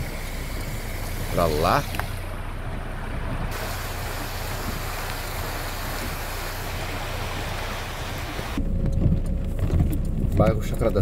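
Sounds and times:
water rushing along gutter: 0.0 - 8.6.

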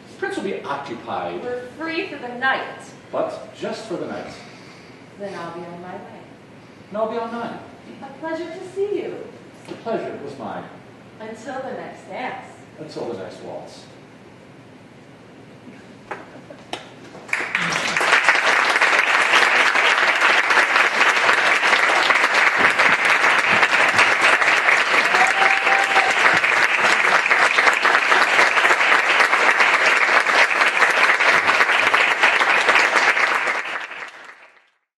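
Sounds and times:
audience applauding: 16.1 - 34.8.

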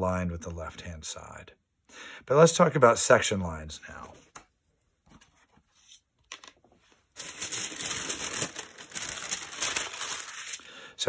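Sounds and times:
paper rustling and crinkling: 5.1 - 10.7.

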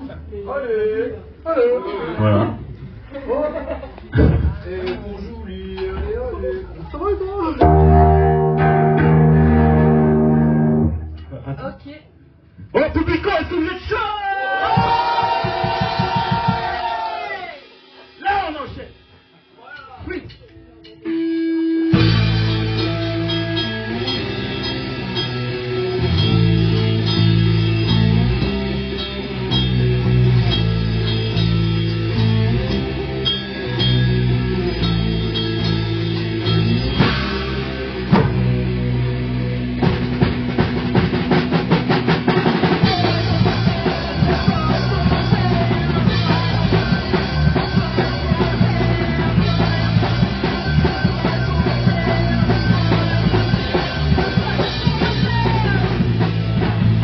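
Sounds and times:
drum kit: 3.8 - 11.4, 12.5 - 57.0
electric guitar: 7.6 - 11.4, 20.5 - 57.0.

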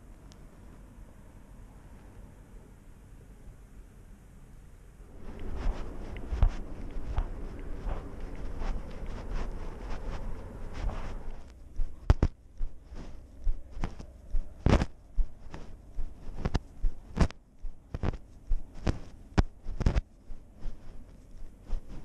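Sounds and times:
muffled camera thumps and knocks: 11.8 - 12.8, 14.6 - 20.1.

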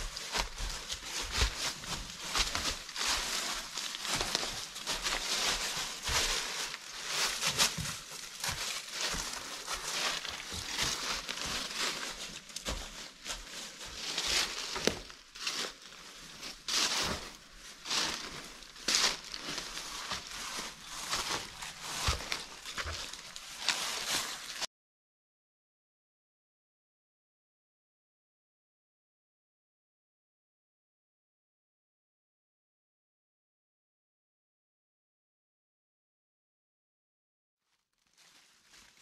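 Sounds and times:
footsteps crunching through dry leaves: 0.0 - 24.7, 38.0 - 39.0.

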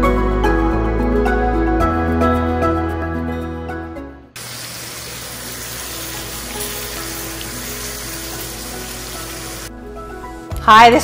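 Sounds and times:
background music: 0.0 - 11.0
steak sizzling in oil: 4.4 - 10.4.

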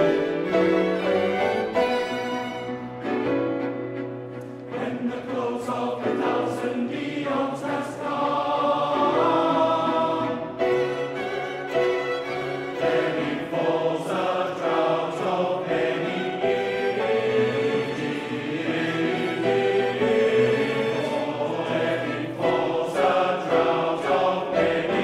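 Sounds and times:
choir singing held chords: 0.0 - 3.7, 4.3 - 25.0
violins and cellos: 0.0 - 25.0.

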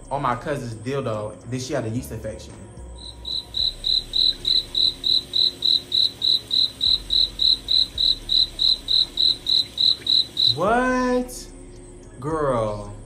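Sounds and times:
cricket chirping: 2.9 - 12.2.

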